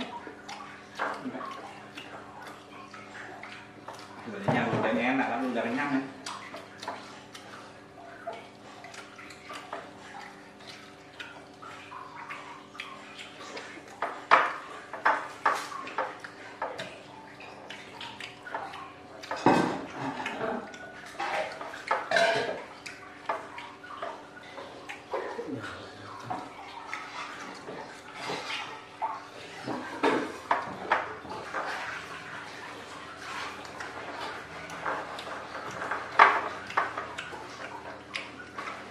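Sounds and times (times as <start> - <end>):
plates and utensils clinking: 19.3 - 22.7.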